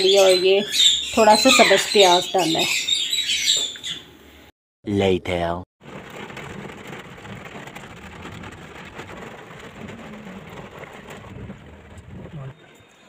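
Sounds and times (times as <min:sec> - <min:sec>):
car engine and road noise: 0:05.8 - 0:12.9
rain on car windows: 0:05.8 - 0:12.9.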